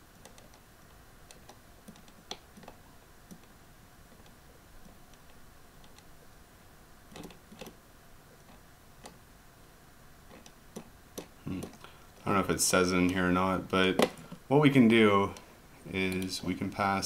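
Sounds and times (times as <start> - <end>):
quiet room hiss: 0.0 - 17.0
faint computer clicks: 15.3 - 16.4.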